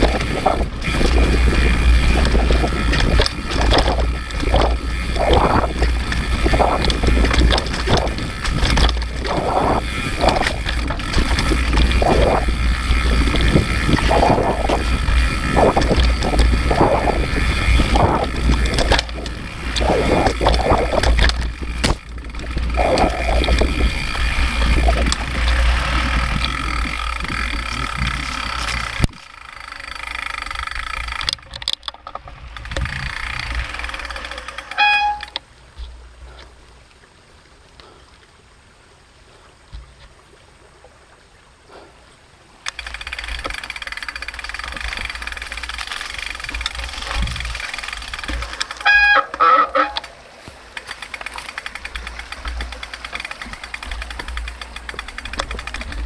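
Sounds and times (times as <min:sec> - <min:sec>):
wind buffeting microphone: 0:00.0 - 0:29.2, 0:46.3 - 0:48.5
bike rattling over rough ground: 0:00.0 - 0:36.3, 0:42.6 - 0:56.0.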